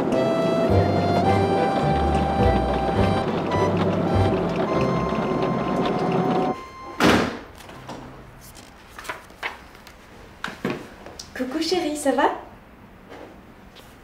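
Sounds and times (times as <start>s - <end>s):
soundtrack music with held notes: 0.0s - 6.6s
loud thump: 7.0s - 7.5s
magazine pages rustling: 7.6s - 10.3s.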